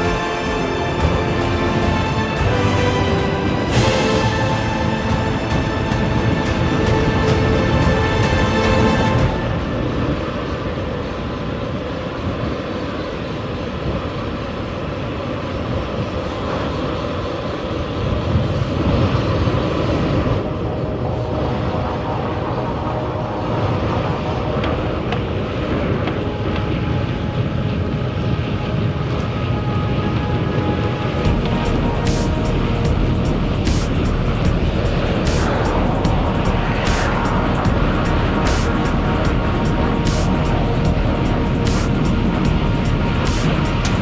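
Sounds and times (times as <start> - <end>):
wind rushing over microphone: 0.0 - 44.0.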